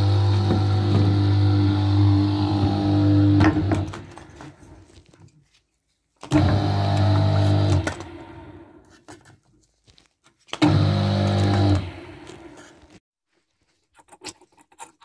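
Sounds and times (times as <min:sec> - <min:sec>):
electric motor humming: 0:00.0 - 0:03.9, 0:06.3 - 0:08.5, 0:10.6 - 0:12.5.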